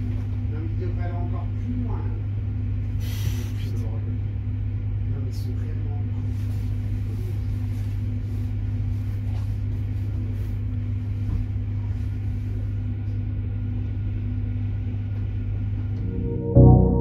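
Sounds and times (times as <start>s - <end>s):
train low hum: 0.0s - 17.0s
faint higher tone: 16.0s - 17.0s.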